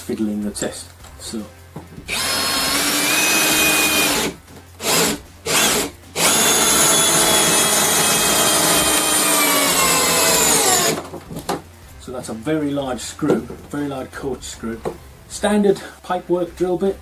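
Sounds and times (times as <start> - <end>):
drill driving screw into wood: 2.1 - 11.1.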